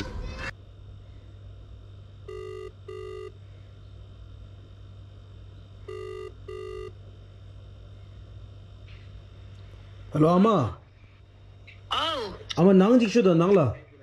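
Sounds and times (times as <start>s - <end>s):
faint low hum: 0.0s - 14.0s
phone ringback beeps: 2.3s - 3.3s, 5.9s - 6.9s.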